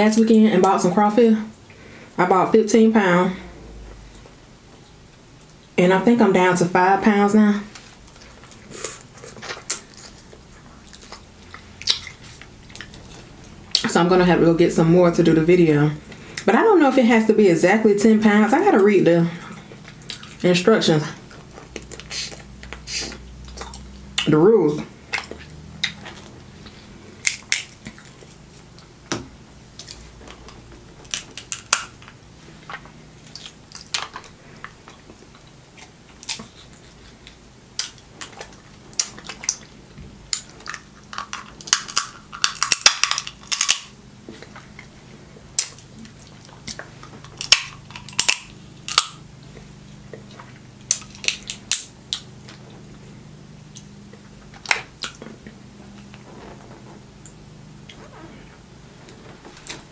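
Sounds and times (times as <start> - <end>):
chewing: 7.8 - 13.9, 19.4 - 20.4, 21.2 - 24.3, 25.1 - 28.9, 29.8 - 53.0, 53.6 - 58.1
crab shells cracking: 27.2 - 28.2, 31.0 - 32.2, 40.3 - 44.0, 46.6 - 49.2, 50.8 - 52.3.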